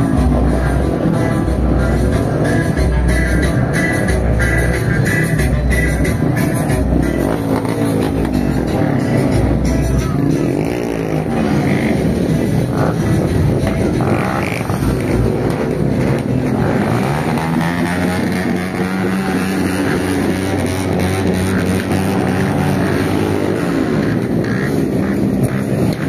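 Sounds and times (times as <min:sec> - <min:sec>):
motorcycle engines droning: 0:00.0 - 0:26.0.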